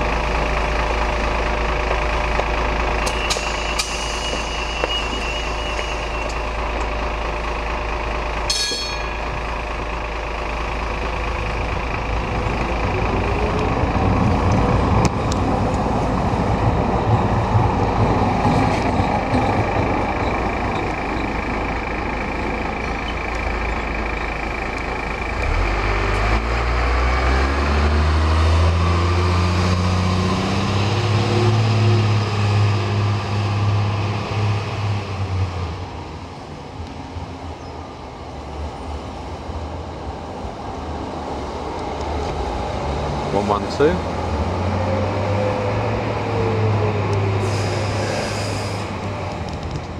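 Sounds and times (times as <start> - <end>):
deep engine note climbing: 4.4 - 36.5, 40.7 - 49.9.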